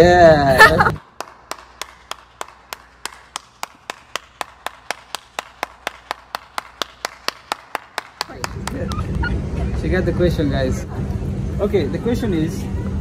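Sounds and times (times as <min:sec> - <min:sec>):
person clapping: 0:00.9 - 0:09.3.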